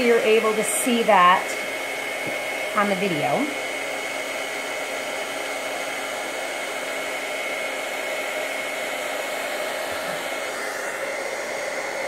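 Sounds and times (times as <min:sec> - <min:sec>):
heat gun blower hiss: 0:00.0 - 0:05.5, 0:06.8 - 0:12.0.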